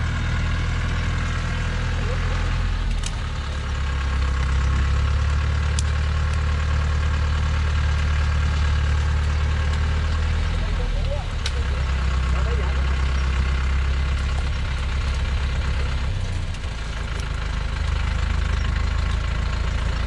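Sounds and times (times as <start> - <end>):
lorry engine under load: 0.0 - 20.0.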